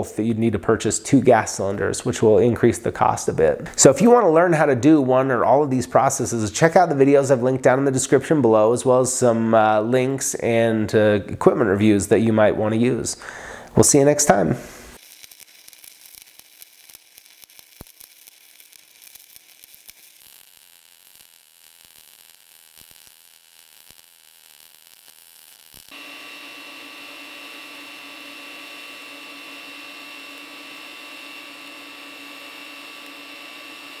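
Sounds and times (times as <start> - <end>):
welding arc hiss with whine: 0.0 - 10.6, 12.8 - 34.0
arc welding crackling: 13.8 - 34.0.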